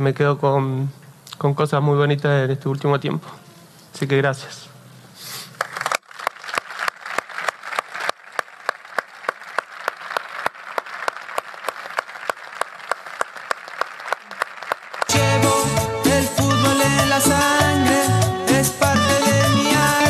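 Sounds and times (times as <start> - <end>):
audience applauding: 5.6 - 15.2
one person clapping evenly: 5.6 - 15.2
music: 15.1 - 20.0.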